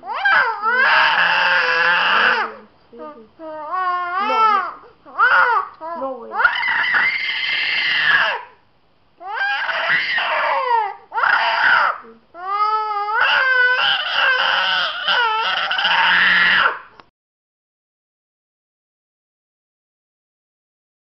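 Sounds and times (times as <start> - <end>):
boy crying and screaming: 0.0 - 2.6, 3.7 - 8.5, 9.2 - 16.8.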